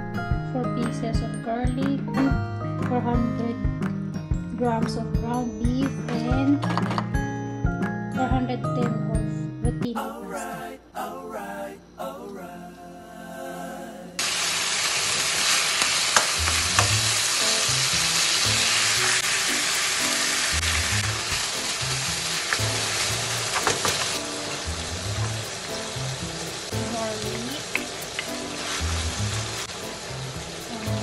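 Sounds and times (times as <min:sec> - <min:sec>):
meat sizzling in a frying pan: 0:14.2 - 0:31.0.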